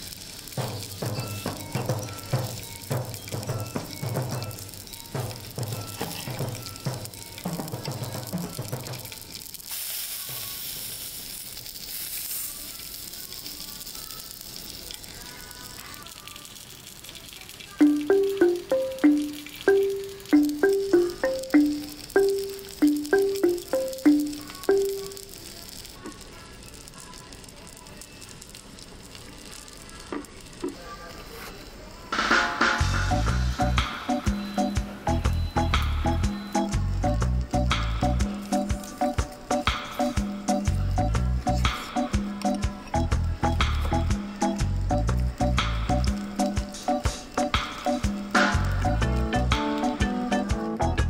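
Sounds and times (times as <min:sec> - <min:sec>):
steak sizzling on hot plate: 0:00.0 - 0:51.0
background music: 0:17.8 - 0:25.3, 0:32.2 - 0:51.0.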